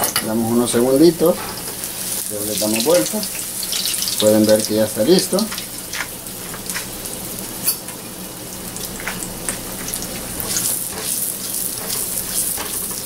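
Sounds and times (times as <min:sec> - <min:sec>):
hot oil sizzling and popping: 0:00.0 - 0:13.0.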